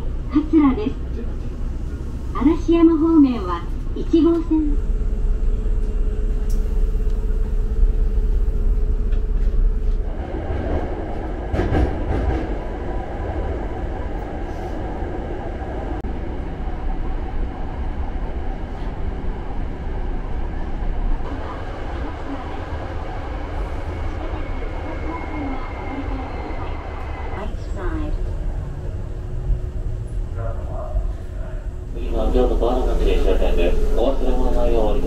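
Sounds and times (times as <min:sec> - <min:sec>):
train clatter: 0:00.0 - 0:14.4, 0:30.0 - 0:35.0
train rumble: 0:00.0 - 0:35.0
wheels rushing on rails: 0:00.0 - 0:35.0
steady hum: 0:27.4 - 0:35.0.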